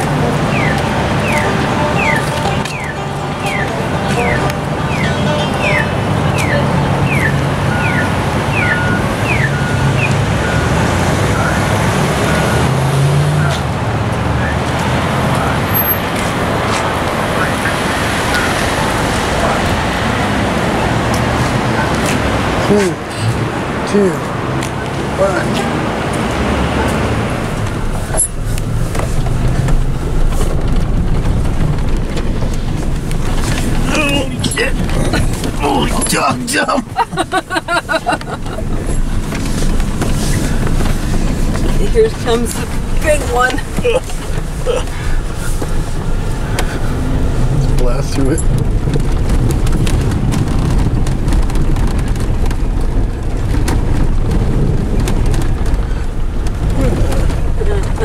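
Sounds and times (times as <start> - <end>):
engine and tyre rumble in cabin: 0.0 - 58.0
debris ticking on vehicle: 27.4 - 36.3, 36.9 - 58.0.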